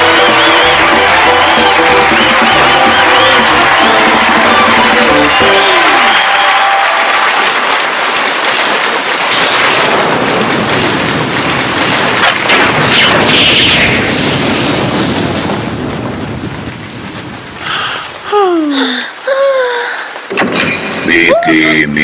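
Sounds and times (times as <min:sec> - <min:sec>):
heavy rain: 0:00.0 - 0:22.0
rumbling thunder: 0:07.6 - 0:18.3.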